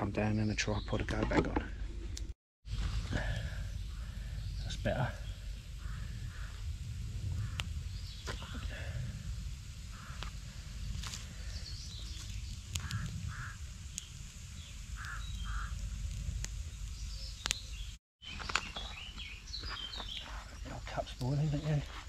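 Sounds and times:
low outdoor rumble: 1.0s - 18.0s
campfire crackling and popping: 2.1s - 19.7s, 21.0s - 21.8s
birds calling: 2.8s - 9.0s, 9.7s - 21.9s
high bird chirps: 11.4s - 15.8s.

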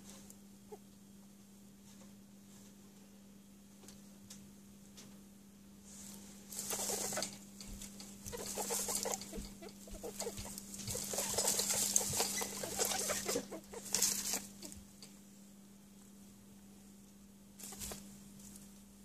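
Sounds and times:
straw rustling: 5.9s - 14.9s
baby rabbits squeaking: 6.5s - 15.0s, 17.6s - 18.0s.

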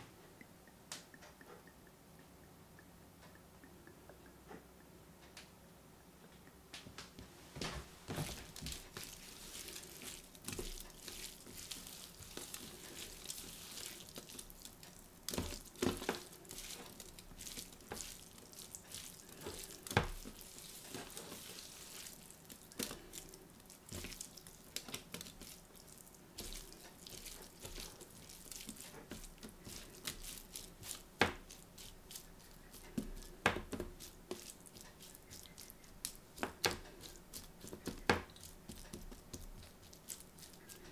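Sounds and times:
wet squelches of raw meat: 8.1s - 40.9s
hand slapping meat: 26.4s - 40.9s.

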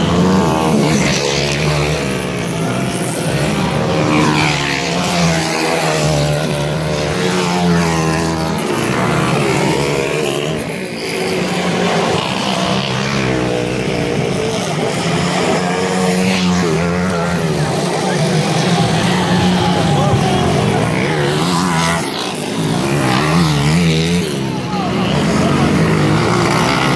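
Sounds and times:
dirt bike engines revving: 0.0s - 26.9s.

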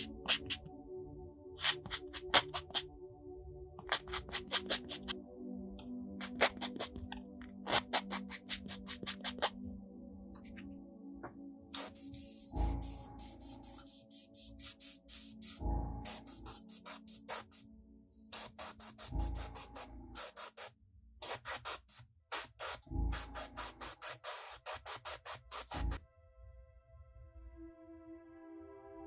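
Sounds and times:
electronic music with steady beat: 0.0s - 0.9s, 10.4s - 26.0s.

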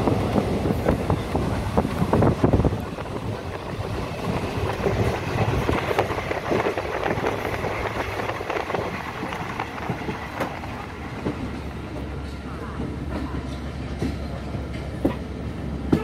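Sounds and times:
wind on microphone: 0.0s - 11.6s
train rumbling on track: 0.0s - 16.0s.

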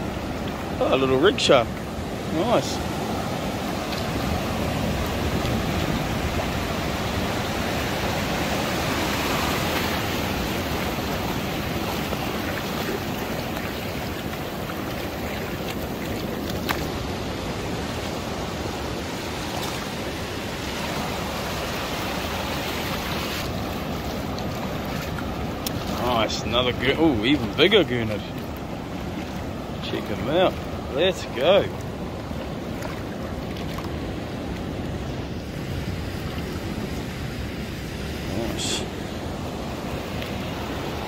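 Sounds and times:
surf washing over sand: 0.0s - 41.0s.

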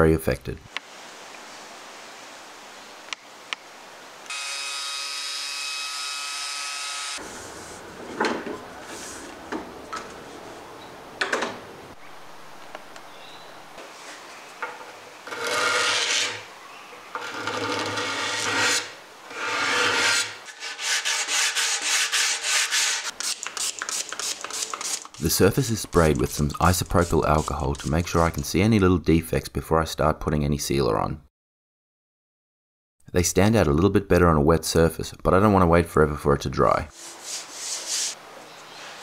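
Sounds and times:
sandpaper rubbing wood: 15.4s - 16.4s, 17.6s - 28.4s, 36.9s - 38.2s.

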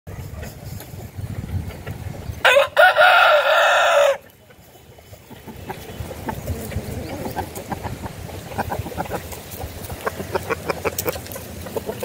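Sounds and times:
rooster crowing: 2.4s - 4.2s
faint chicken clucks: 2.5s - 12.0s.

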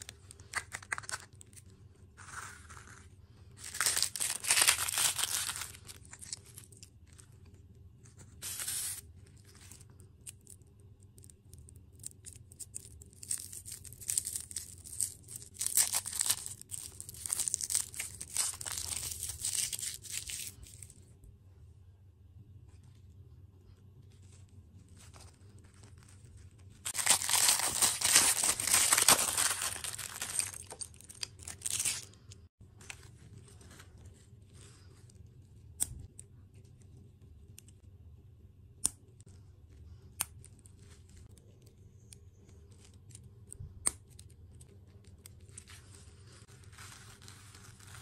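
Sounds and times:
plastic wrapper tearing and crinkling: 0.0s - 1.6s, 3.6s - 6.9s, 11.9s - 20.9s, 25.7s - 32.2s.

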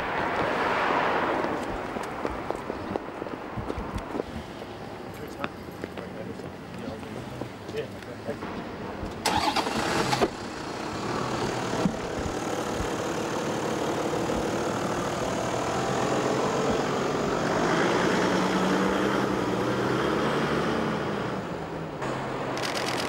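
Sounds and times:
car engine idling: 9.3s - 15.8s.

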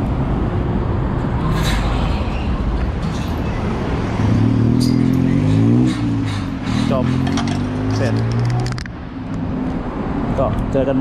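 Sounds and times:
street traffic: 0.0s - 11.0s
auto rickshaw engine passing: 0.6s - 8.9s.

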